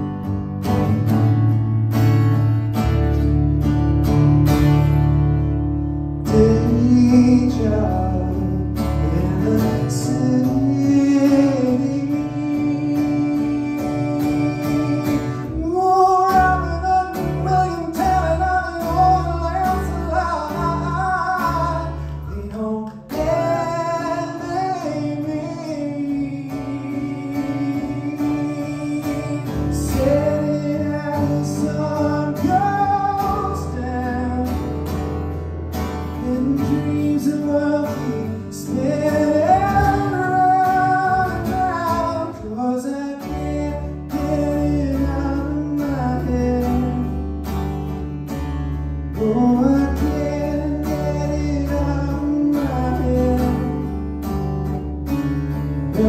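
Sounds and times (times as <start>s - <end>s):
acoustic guitar strumming: 0.0s - 56.0s
man singing: 6.2s - 47.9s, 49.0s - 54.8s, 55.6s - 56.0s.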